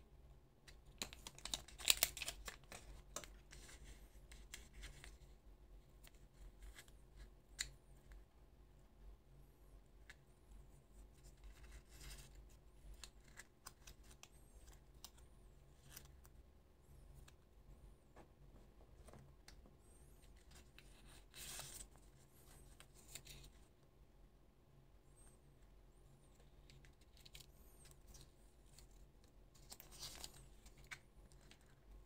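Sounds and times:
paper and plastic crinkling: 1.0 - 3.9.

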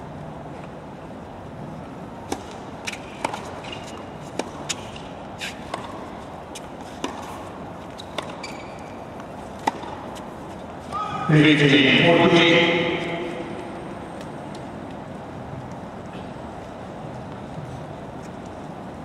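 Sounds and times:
background noise: 0.0 - 19.0
tennis ball bouncing on court: 2.2 - 10.6
tennis ball hitting racket: 2.2 - 10.6.

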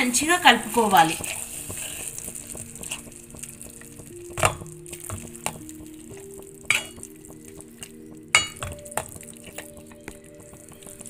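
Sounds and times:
soft background music: 0.0 - 11.0
masher squelching vegetables: 0.8 - 11.0.

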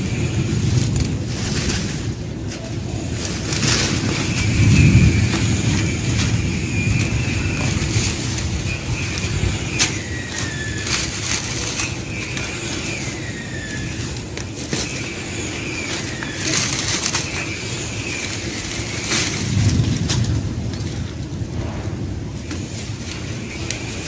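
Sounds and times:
dry plants rustling and snapping: 0.0 - 24.0
low rumble: 15.8 - 24.0.

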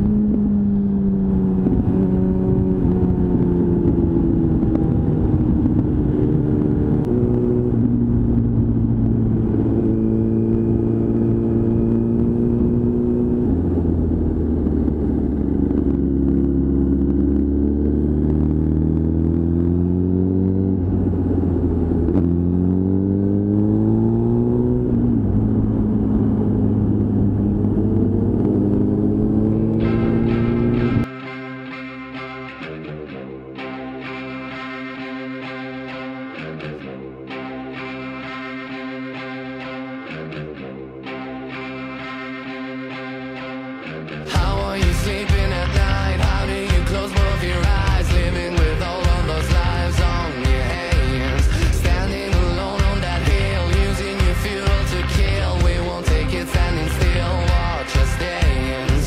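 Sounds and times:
motorcycle engine while riding: 0.0 - 31.2, 41.8 - 59.0.

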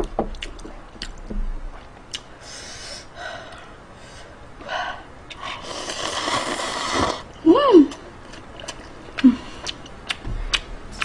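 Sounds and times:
noodles slurped: 5.4 - 7.3.

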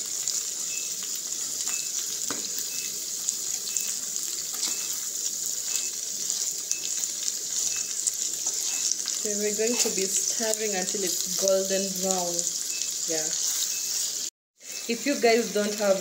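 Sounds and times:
fish sizzling in oil: 0.0 - 16.0
spoon stirring clicks and scrapes: 4.5 - 10.0.

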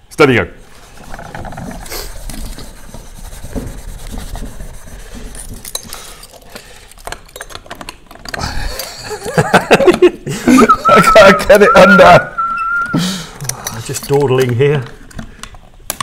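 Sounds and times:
steel wool scrubbing pipes: 0.7 - 5.7
small metallic clinks and rattles: 5.3 - 9.5, 13.4 - 16.0.

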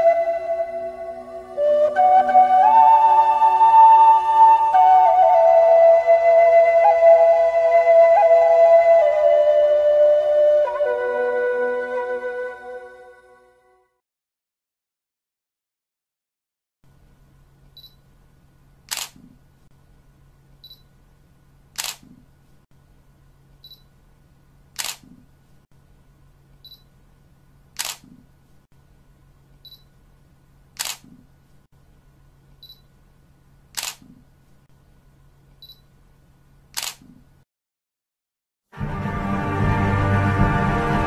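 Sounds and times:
low steady hum: 16.9 - 37.4
camera shutter click: 18.9 - 19.2, 21.8 - 22.2, 24.8 - 25.1, 27.8 - 28.2, 30.8 - 31.2, 33.7 - 34.1, 36.7 - 37.1.

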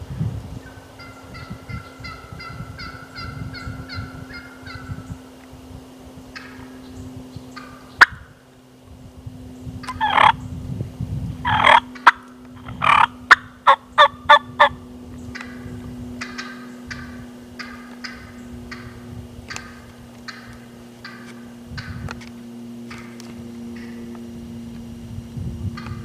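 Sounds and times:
wild turkey yelping: 0.6 - 5.3, 6.3 - 8.2, 9.8 - 10.5, 11.4 - 22.1, 22.9 - 24.2
turkey sharp cutts: 0.7 - 5.1, 6.3 - 8.3, 9.8 - 10.4, 11.4 - 24.2, 25.8 - 26.0.

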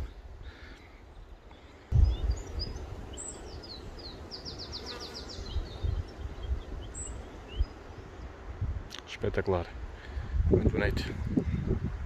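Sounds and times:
small songbirds chirping: 0.0 - 8.6
wind rumbling on microphone: 1.2 - 12.0.

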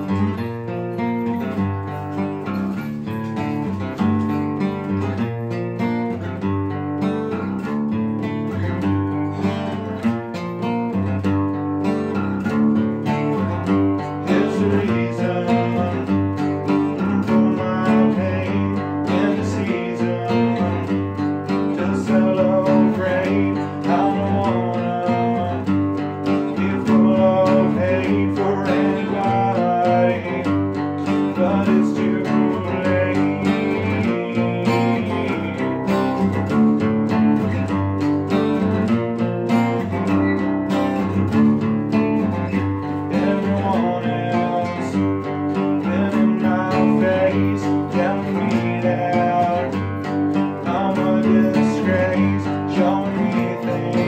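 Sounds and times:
man singing: 0.0 - 0.7, 12.4 - 54.0
acoustic bass line: 0.0 - 54.0
acoustic guitar picked and strummed: 0.0 - 54.0.

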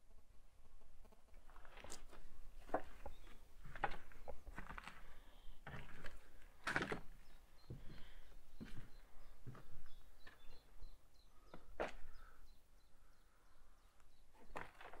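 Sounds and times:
footsteps crunching: 1.3 - 10.6, 11.5 - 12.3.

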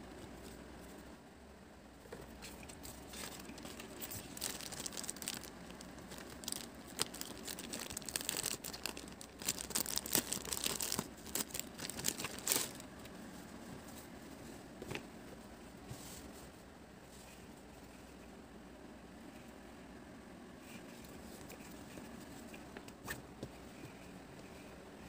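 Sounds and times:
plastic wrapping crinkling: 3.1 - 12.9.

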